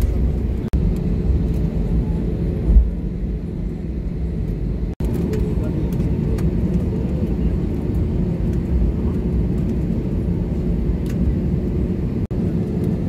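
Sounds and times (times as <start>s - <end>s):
constant hum: 0.0s - 13.0s
jet engines low rumble: 0.0s - 13.0s.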